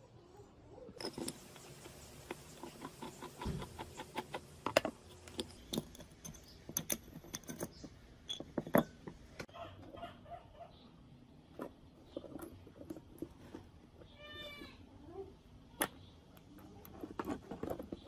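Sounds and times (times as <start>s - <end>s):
small metal parts clicking: 1.0s - 9.2s.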